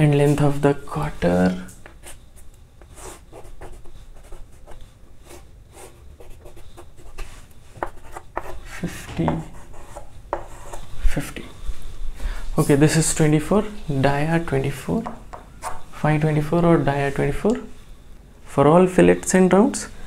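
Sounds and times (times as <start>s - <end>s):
chalk scratching on blackboard: 2.8s - 10.9s.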